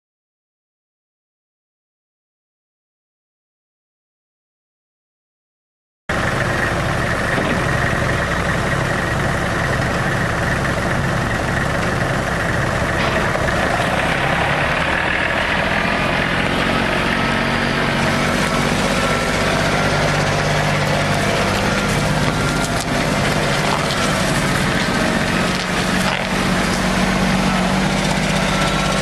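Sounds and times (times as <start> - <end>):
diesel tractor engine idling: 6.1 - 29.0.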